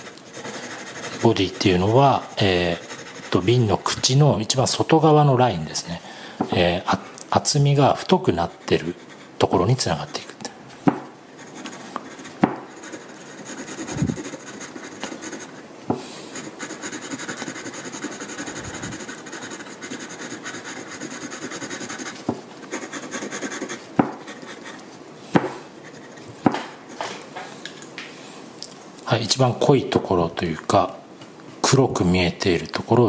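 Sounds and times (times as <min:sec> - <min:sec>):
sharp pencil ticks: 0:00.0 - 0:03.6, 0:16.4 - 0:24.8
pencil scratching on paper: 0:00.0 - 0:04.1, 0:07.8 - 0:10.3, 0:11.4 - 0:15.6, 0:16.3 - 0:24.9, 0:25.8 - 0:26.3.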